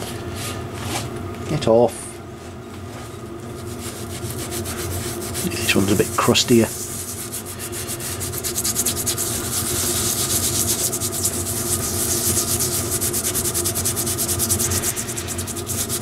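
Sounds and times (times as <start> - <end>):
scouring pad scraping metal: 3.5 - 16.0.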